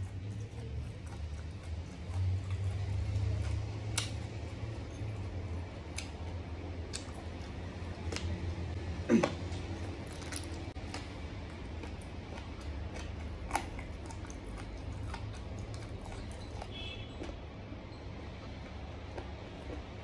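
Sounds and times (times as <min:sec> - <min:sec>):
mouth clicks and smacks: 0:00.0 - 0:04.8, 0:05.7 - 0:17.4.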